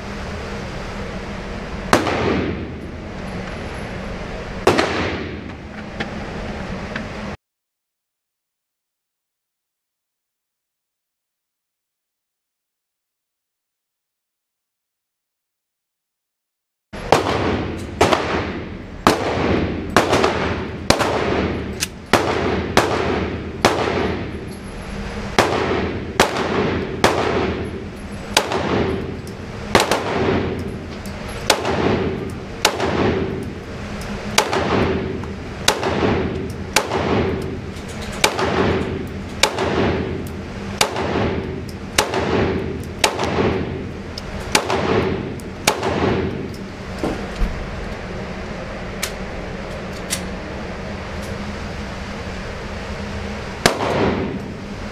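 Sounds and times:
pistol shots echoing indoors: 1.9 - 3.0, 4.6 - 5.5, 17.0 - 24.6, 25.3 - 46.7, 53.6 - 54.6.

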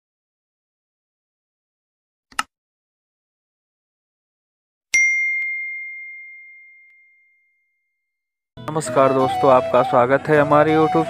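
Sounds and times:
bright bell ding: 5.0 - 7.7.

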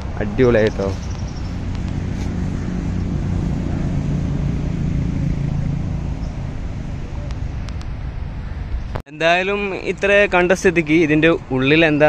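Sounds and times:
vehicle engine passing: 0.0 - 9.0.

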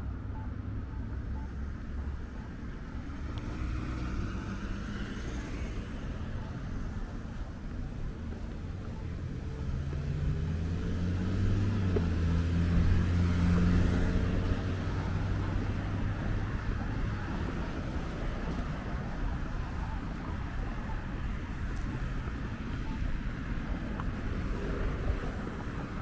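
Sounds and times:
general traffic noise: 0.0 - 26.0
vehicle engine passing by: 8.9 - 19.1.

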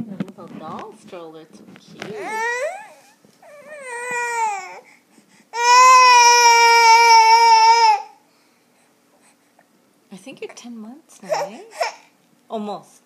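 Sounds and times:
baby crying: 2.2 - 4.9, 5.5 - 8.2, 11.2 - 12.1.

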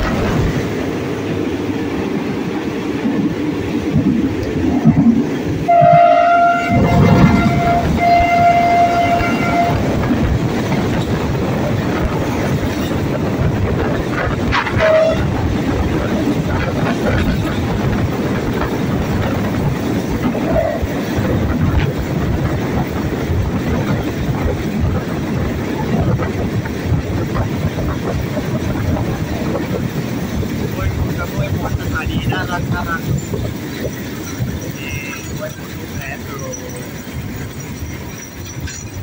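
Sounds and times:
train running along track: 0.0 - 39.0
locomotive horn: 5.6 - 10.2, 14.5 - 15.5, 34.7 - 35.4.

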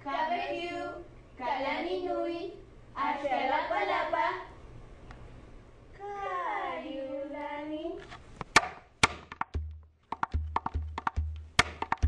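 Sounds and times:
gourd drum slaps: 8.5 - 12.0
gourd drum booming on floor: 9.0 - 12.0.

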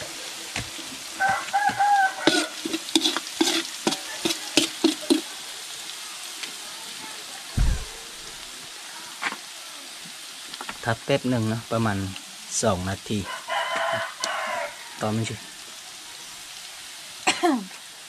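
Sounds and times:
paste sizzling in oil: 0.0 - 18.0
metal spatula scraping wok: 0.8 - 5.4
low thump: 7.6 - 8.4.

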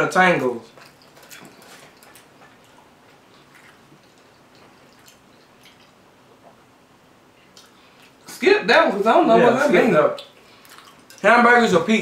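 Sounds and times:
chewing: 0.7 - 6.7, 7.4 - 8.2, 10.1 - 11.3.

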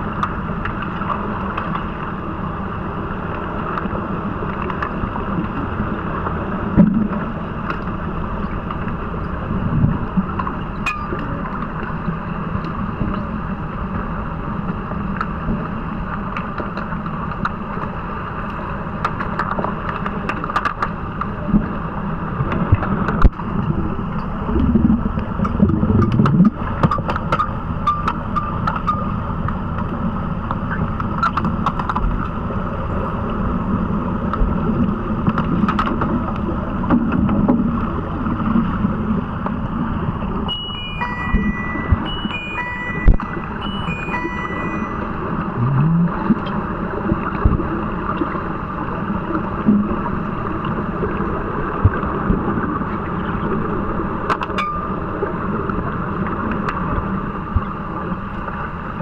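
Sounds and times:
short electronic beeps: 40.5 - 46.2.

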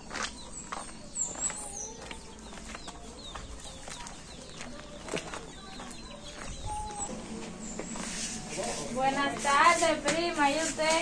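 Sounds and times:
birds chirping: 0.0 - 9.7.

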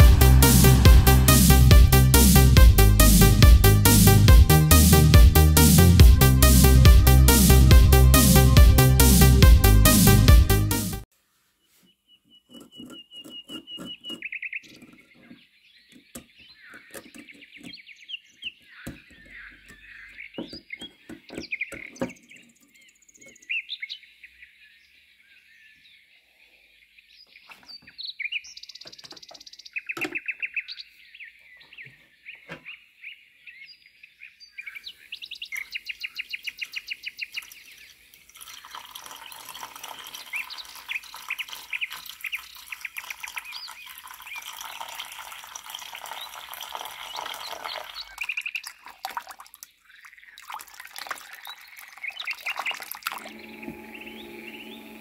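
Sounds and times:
small birds chirping: 11.6 - 55.0
running bubbling water: 37.5 - 54.3.

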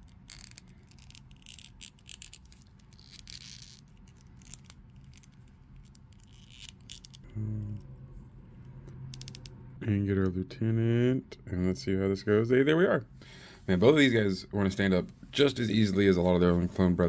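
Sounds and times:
person humming: 7.2 - 8.0.

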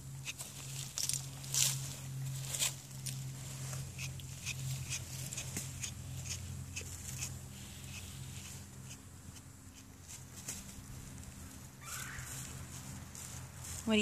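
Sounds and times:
steady low hum: 0.0 - 14.0
stripping knife scratching through fur: 0.1 - 11.2.

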